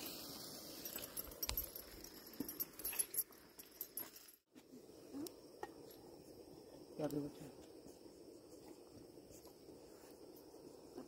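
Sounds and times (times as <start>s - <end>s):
faint small clicks and clinks: 0.8s - 4.5s.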